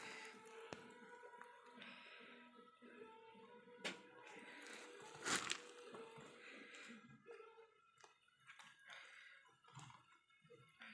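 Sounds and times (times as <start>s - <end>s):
leaves rustling and crinkling: 4.5s - 5.8s.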